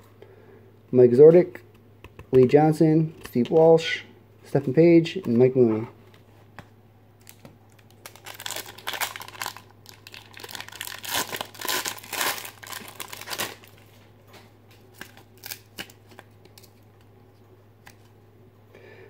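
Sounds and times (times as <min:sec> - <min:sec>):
foil pack tearing and crinkling: 0:07.2 - 0:13.9, 0:14.9 - 0:16.7.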